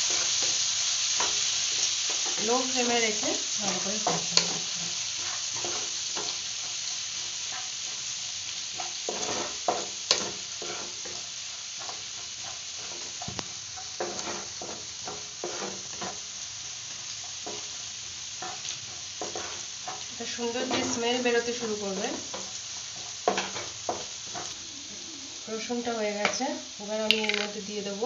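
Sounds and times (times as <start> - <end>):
garlic sizzling in a frying pan: 0.0 - 28.0
wooden spatula scraping a pan: 1.2 - 6.8, 8.7 - 16.4, 18.4 - 26.4.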